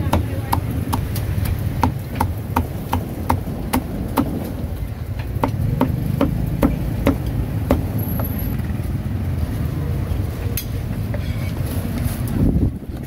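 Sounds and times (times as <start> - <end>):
cleaver chopping on wooden block: 0.0 - 1.2, 1.8 - 4.3, 5.4 - 7.9.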